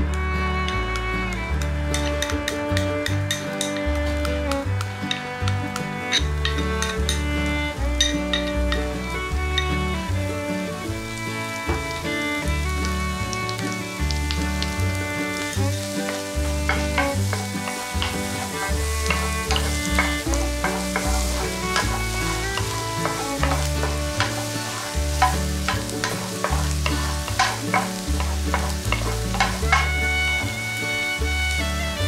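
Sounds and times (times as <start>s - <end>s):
background music with bass line: 0.0s - 32.0s
onion sizzling in butter: 0.3s - 32.0s
spatula scraping a pan: 15.4s - 31.1s.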